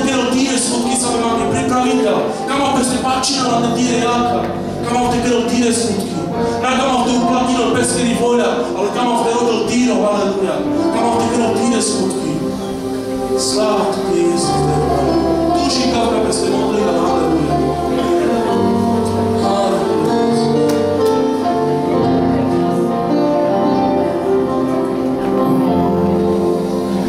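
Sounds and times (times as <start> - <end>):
electronic keyboard worship music: 0.0 - 27.0
person singing: 13.3 - 23.3.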